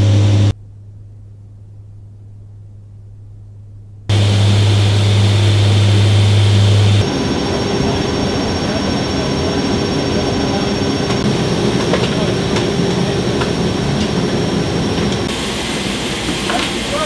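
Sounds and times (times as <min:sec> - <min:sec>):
engine hiss with high whine: 0:00.0 - 0:00.6, 0:04.1 - 0:17.0
turboprop aircraft drone: 0:00.0 - 0:00.8, 0:04.0 - 0:17.0.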